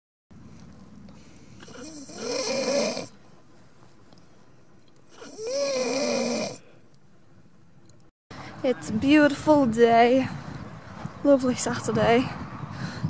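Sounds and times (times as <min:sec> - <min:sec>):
person snoring: 0:01.6 - 0:03.1, 0:05.2 - 0:06.6.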